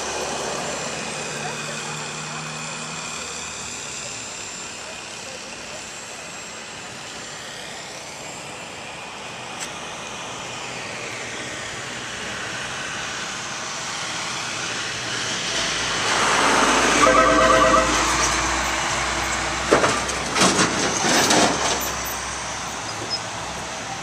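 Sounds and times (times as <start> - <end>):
road vehicle approaching: 0.0 - 5.9, 10.2 - 24.0
warbling squeal: 16.9 - 18.6.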